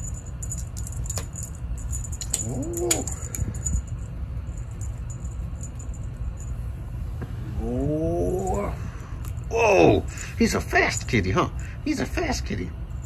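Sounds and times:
cat toy jingling and rattling: 0.0s - 6.8s.

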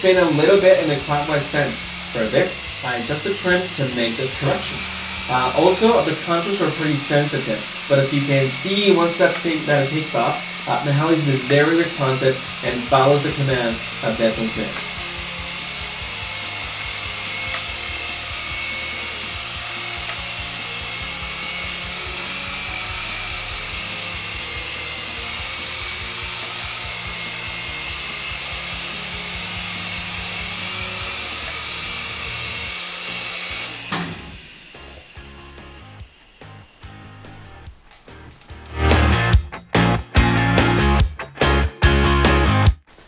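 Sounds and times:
toy helicopter rotors whining: 0.0s - 38.5s.

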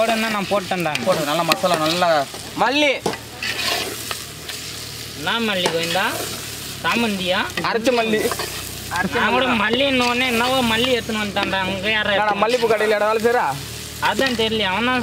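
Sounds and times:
masala sizzling: 0.0s - 15.0s
ladle scraping metal pot: 3.0s - 4.6s, 7.9s - 8.7s.

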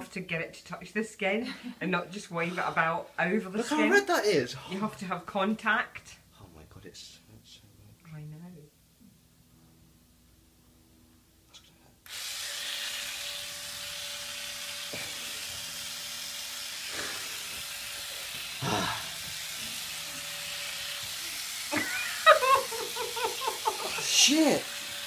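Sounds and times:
epilator whirring: 12.1s - 25.0s
man crying out in pain: 18.6s - 19.2s.

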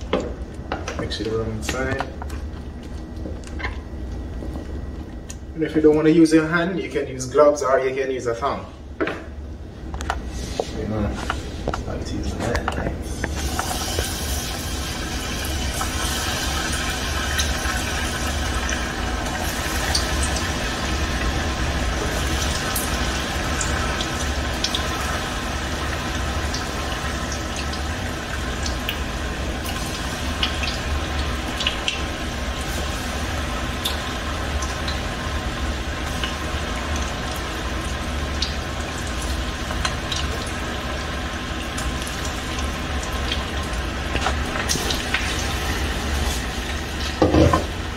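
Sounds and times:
deep-frying sizzle with pops: 12.8s - 47.9s.

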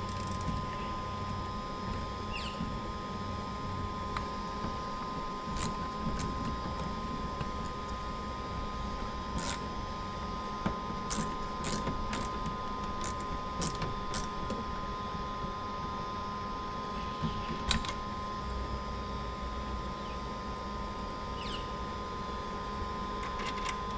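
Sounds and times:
cables clicking and rattling: 0.0s - 2.0s, 5.5s - 7.7s, 9.4s - 9.6s, 11.1s - 14.3s
background hum: 0.0s - 23.9s.

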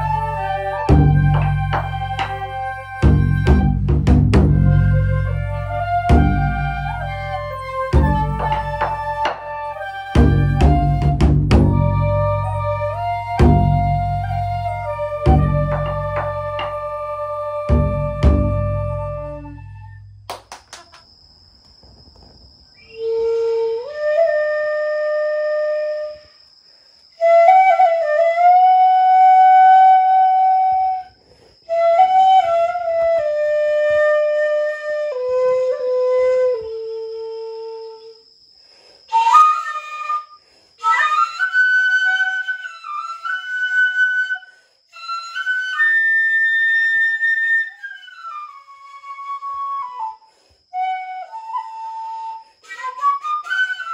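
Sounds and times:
bamboo flute solo melody: 0.0s - 20.9s, 22.8s - 26.3s, 27.2s - 38.2s, 39.1s - 53.9s.

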